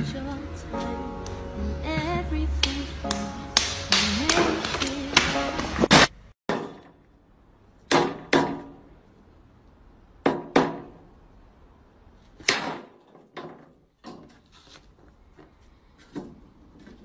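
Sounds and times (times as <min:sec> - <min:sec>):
sledgehammer striking pole: 0:07.9 - 0:08.8.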